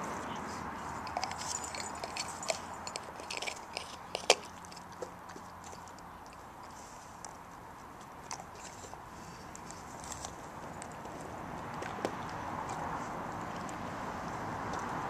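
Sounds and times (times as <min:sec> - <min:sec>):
dog crunching ice: 0:01.0 - 0:12.8.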